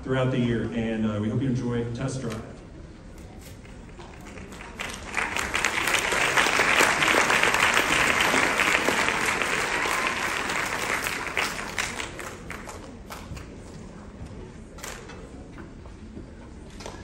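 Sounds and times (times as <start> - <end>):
audience applauding: 4.0 - 13.2.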